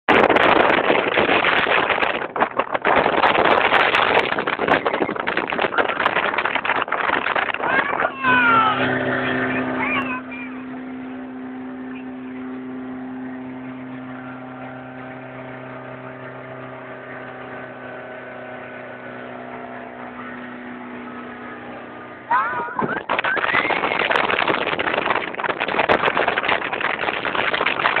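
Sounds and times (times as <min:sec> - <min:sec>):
faint wind: 0:00.0 - 0:28.0
water noise: 0:00.0 - 0:28.0
motorboat engine droning: 0:00.1 - 0:28.0
high voice squealing: 0:07.6 - 0:10.7, 0:22.3 - 0:23.8.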